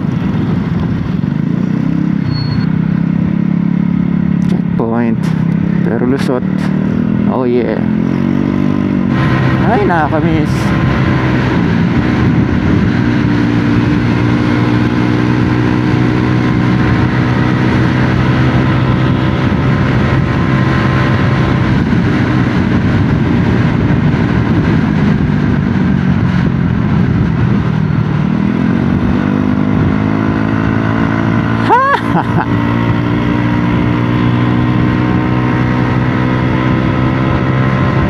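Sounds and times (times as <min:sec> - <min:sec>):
wind on microphone: 0:07.9 - 0:31.6.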